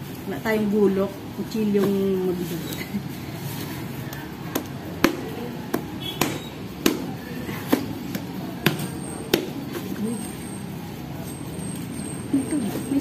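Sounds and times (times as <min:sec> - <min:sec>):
knife chopping coconut husk: 0:04.1 - 0:10.0.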